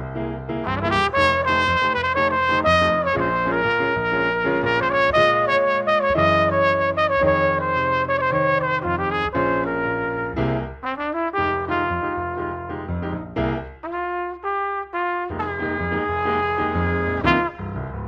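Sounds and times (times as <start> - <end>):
piano accompaniment: 0.0 - 18.0
jazz trumpet melody: 0.6 - 18.0.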